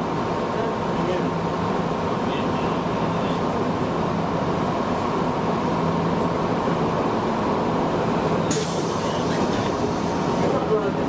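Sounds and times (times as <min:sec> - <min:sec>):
brief hiss: 0:08.5 - 0:10.3.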